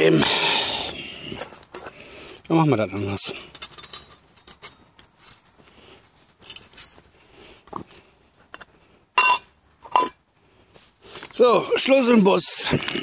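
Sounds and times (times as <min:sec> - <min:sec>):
ringing metal clank: 0:09.2 - 0:10.2.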